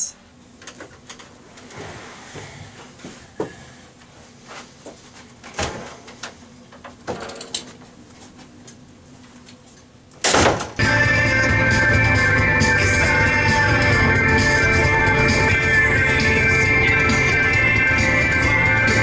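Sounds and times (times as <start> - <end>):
music: 10.8 - 19.0.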